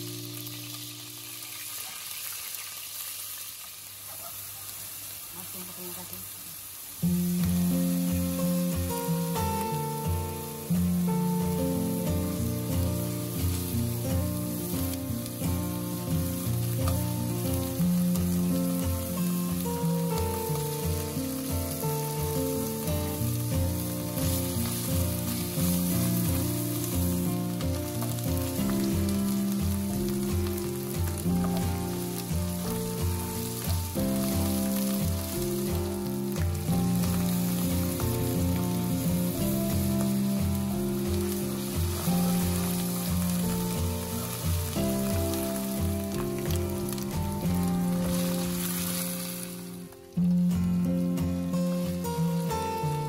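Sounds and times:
paste sizzling in oil: 0.0 - 53.0
background music with steady beat: 7.0 - 53.0
spatula stirring: 12.6 - 49.8.

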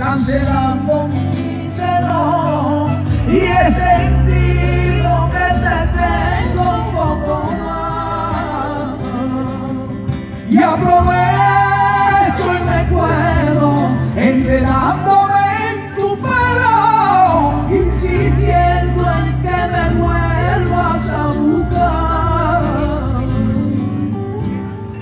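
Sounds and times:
live band playing: 0.0 - 25.0
person singing: 0.0 - 25.0.

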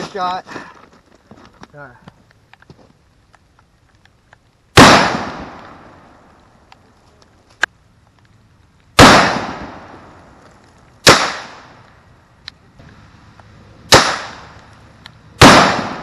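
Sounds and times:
gunshots with long echo: 4.7 - 6.2, 9.0 - 10.1, 11.0 - 11.8, 13.9 - 14.6, 15.4 - 16.0.

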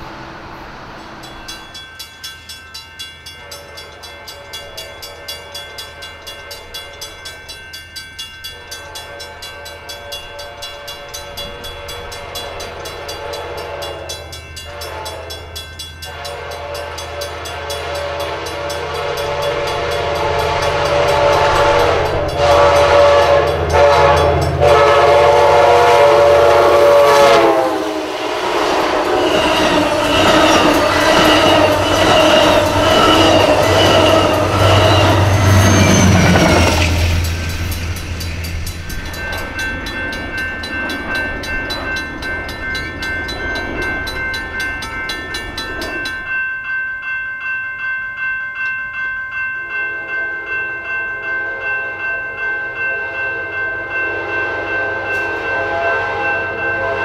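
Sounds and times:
crossing bells ringing: 0.0 - 57.0
train horn chord: 3.3 - 7.1, 8.5 - 38.2, 51.2 - 57.0.

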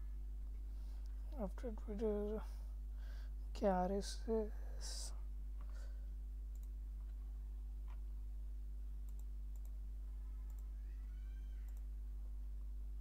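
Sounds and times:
low electrical hum: 0.0 - 13.0
computer mouse clicks: 6.5 - 7.2, 9.1 - 9.8, 10.4 - 10.7, 11.5 - 11.9.

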